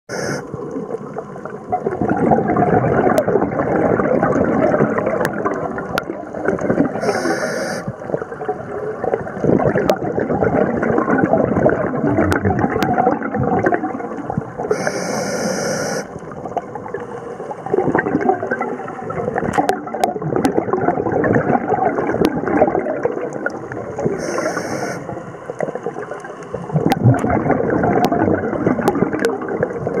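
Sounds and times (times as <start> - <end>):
regulator hiss: 0.1 - 0.4, 7.0 - 7.9, 14.7 - 16.1, 24.2 - 25.2
underwater bubbling of exhaled air: 0.1 - 30.0.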